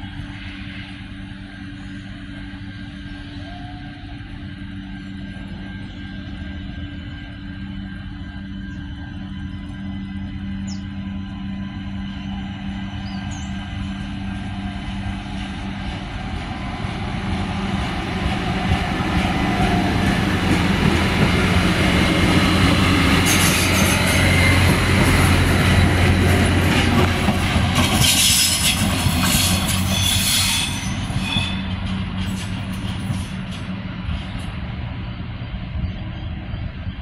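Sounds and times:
diesel railcar engines: 0.0 - 37.0
train wheels rumbling: 0.0 - 37.0
high wheel squeal: 21.3 - 26.5, 27.8 - 33.4.

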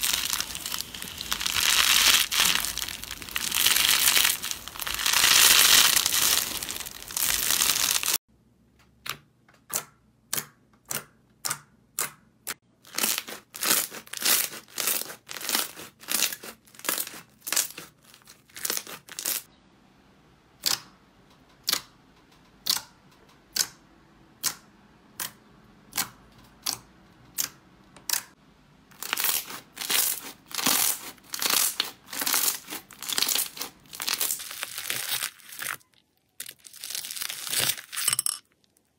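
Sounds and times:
slime crinkling crackle: 0.0 - 8.2, 12.8 - 19.5, 28.9 - 38.0.

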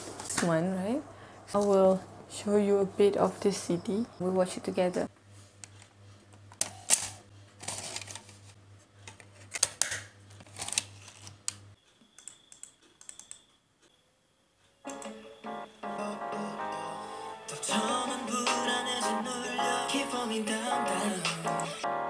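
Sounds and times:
background music: 14.9 - 22.0.

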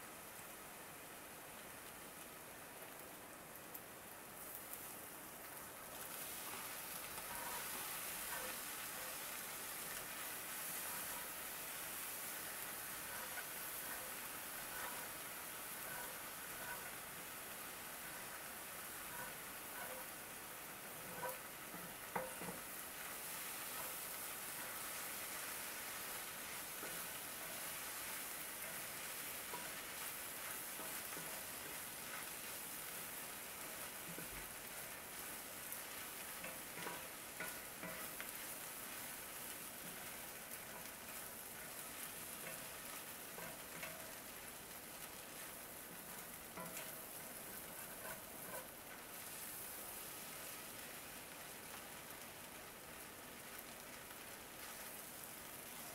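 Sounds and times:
noodles sizzling in a skillet: 0.0 - 55.9
wooden spatula scraping: 13.0 - 15.2, 15.8 - 17.0, 21.0 - 44.2, 45.1 - 49.5.

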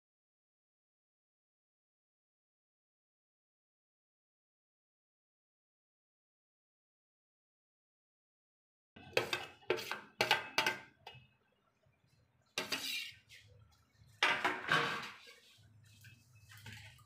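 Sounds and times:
metal spatula scraping a steel plate: 9.0 - 10.8, 12.6 - 13.5, 14.3 - 15.6.

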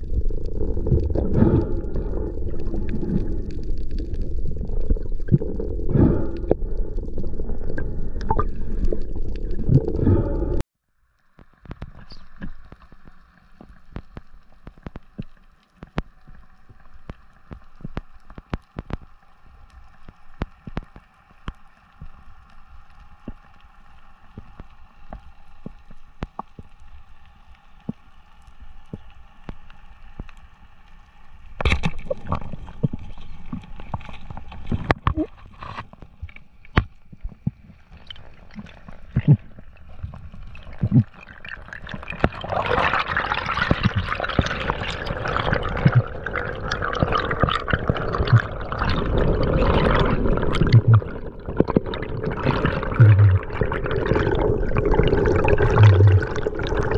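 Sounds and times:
underwater clicks: 11.3 - 19.4, 24.3 - 26.9, 31.5 - 56.9
water rushing past camera: 37.9 - 56.9.

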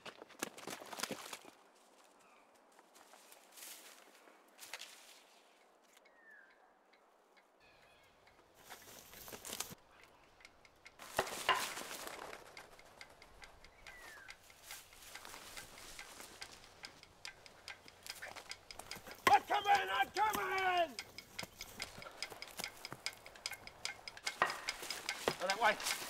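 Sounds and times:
rustling through dry grass: 1.4 - 6.0, 8.6 - 9.8, 11.0 - 19.3, 21.0 - 26.0
bird chirps: 6.1 - 8.6, 12.8 - 16.6.

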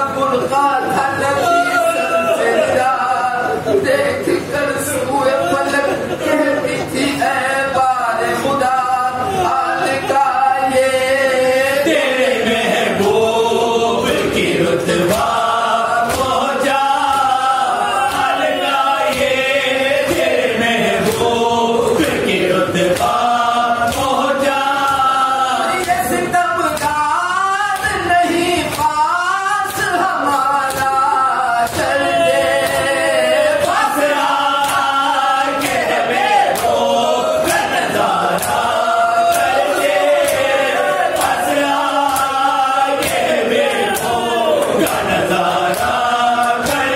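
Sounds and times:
men's congregation chanting: 0.0 - 46.9.

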